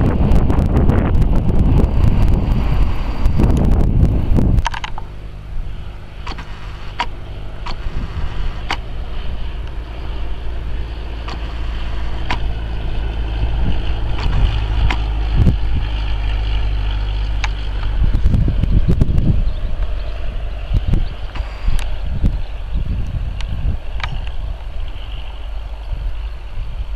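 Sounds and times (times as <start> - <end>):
airplane engine and propeller droning: 0.0 - 26.9
wind rumble on microphone: 0.0 - 26.9
sharp clicks: 4.6 - 5.1, 6.2 - 7.9, 8.6 - 8.8, 12.2 - 12.6, 14.1 - 15.1, 23.4 - 24.4.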